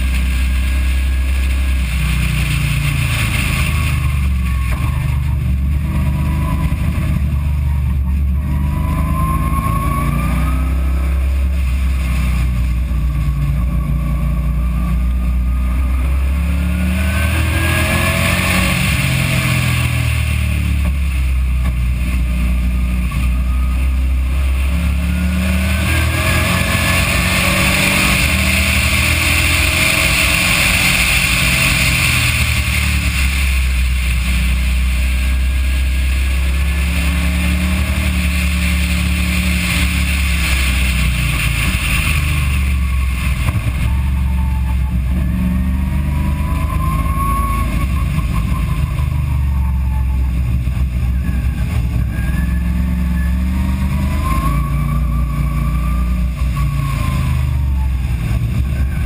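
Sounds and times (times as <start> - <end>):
car engine revving: 0.0 - 59.0
road rumble: 0.0 - 59.0.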